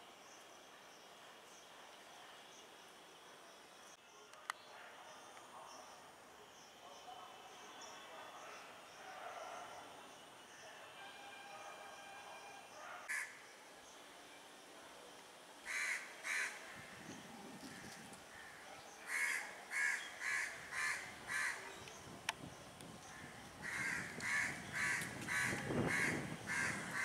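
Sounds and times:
crow cawing: 13.1 - 13.4, 15.7 - 16.6, 18.3 - 21.6, 23.2 - 27.0.

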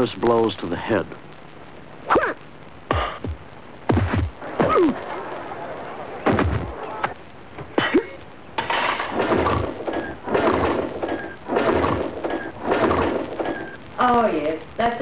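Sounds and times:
rough noisy bursts: 2.6 - 15.0
sharp whack: 2.9 - 5.0, 6.2 - 6.7.

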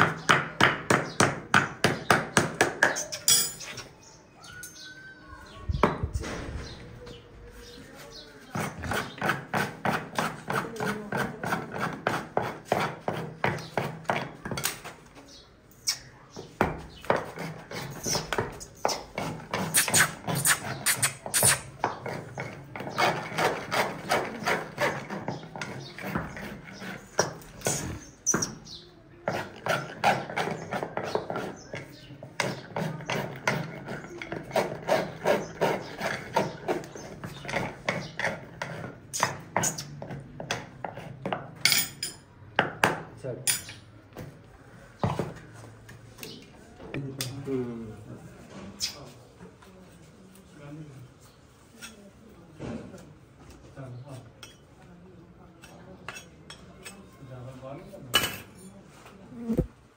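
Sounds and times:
hammer tapping on horseshoe: 0.0 - 3.6.

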